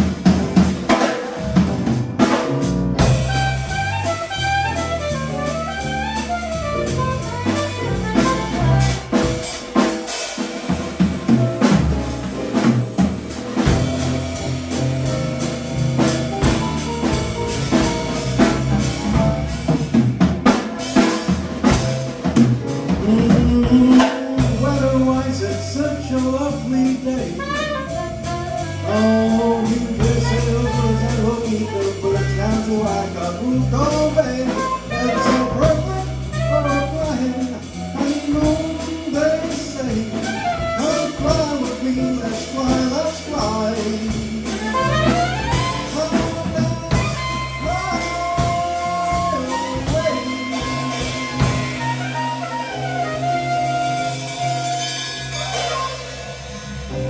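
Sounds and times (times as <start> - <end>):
drums: 0.0 - 57.0
electric bass: 0.0 - 57.0
soprano saxophone: 3.2 - 9.3, 27.3 - 31.1, 44.5 - 56.3.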